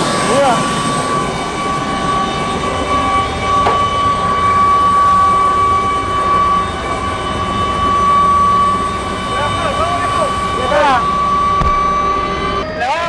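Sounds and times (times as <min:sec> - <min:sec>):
turbine engine whine and rumble: 0:00.0 - 0:13.0
short knock: 0:03.6 - 0:03.9.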